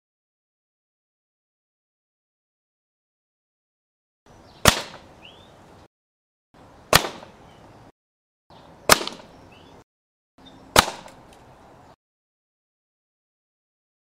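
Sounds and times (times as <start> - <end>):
air rifle shots: 4.6 - 5.1, 6.9 - 7.4, 8.9 - 9.3, 10.7 - 11.2.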